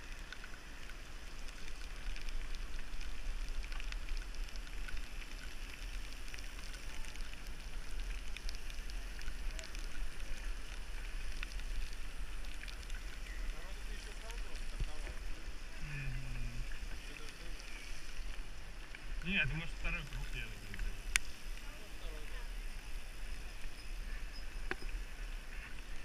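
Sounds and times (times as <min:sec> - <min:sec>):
raindrops ticking on camera: 0:00.0 - 0:26.0.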